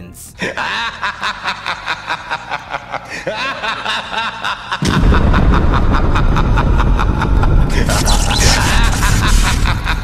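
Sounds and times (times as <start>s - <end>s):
cartoon explosion with rumble: 4.8s - 10.0s.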